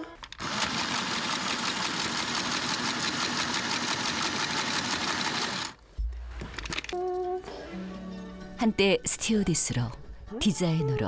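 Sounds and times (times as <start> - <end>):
sewing machine stitching: 0.3 - 5.8.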